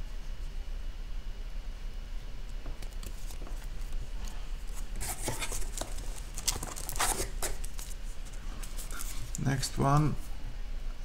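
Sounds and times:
low steady hum: 0:00.0 - 0:11.0
cards rustling and scraping: 0:02.8 - 0:10.1.

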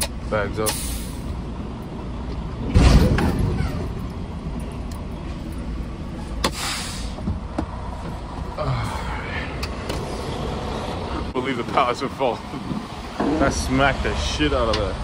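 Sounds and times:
truck diesel engine running: 0:00.0 - 0:15.0
heavy thud of truck coupling: 0:02.6 - 0:04.0.

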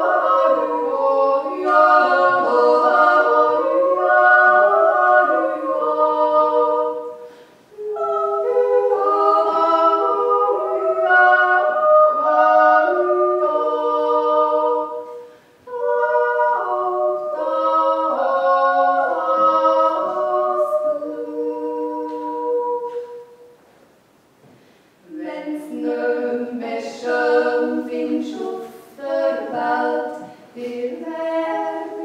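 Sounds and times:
women singing in harmony: 0:00.0 - 0:23.6, 0:25.0 - 0:32.0.

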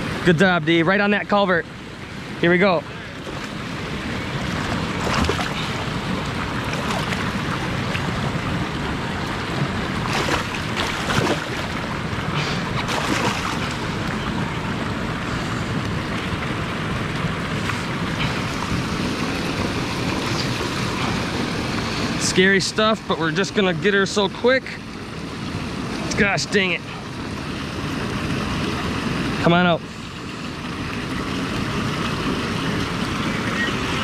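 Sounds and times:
flowing river water: 0:00.0 - 0:34.0
fish splashing at surface: 0:10.0 - 0:11.8, 0:12.4 - 0:13.9.

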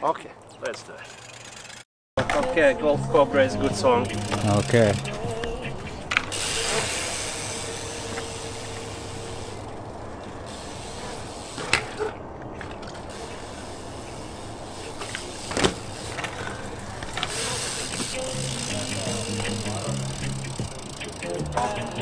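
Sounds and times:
bike tyres rolling on concrete: 0:00.0 - 0:02.8, 0:03.4 - 0:22.0.

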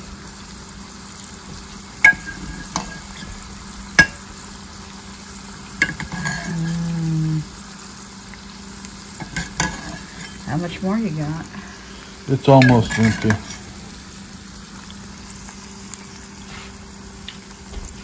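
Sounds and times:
lard sizzling in pot: 0:00.0 - 0:18.0
ladle clinking against pot: 0:02.0 - 0:03.2
ladle scooping: 0:11.8 - 0:13.7.

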